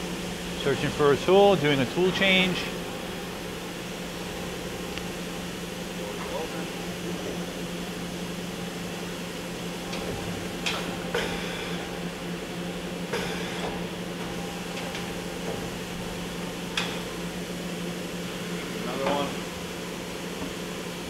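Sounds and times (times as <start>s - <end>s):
machine steady hum: 0.0s - 21.0s.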